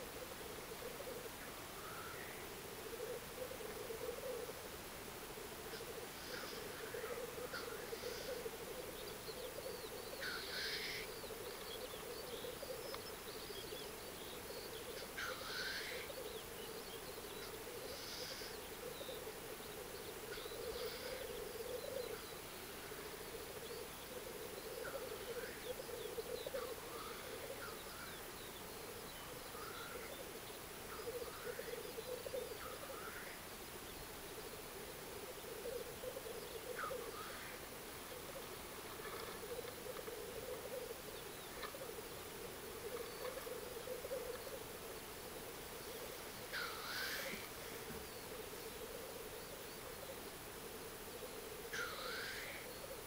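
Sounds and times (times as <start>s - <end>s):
low bubbling coo of grouse: 0.0s - 4.8s, 5.5s - 33.4s, 34.3s - 53.0s
hissing sneeze-like bird calls: 46.5s - 47.5s.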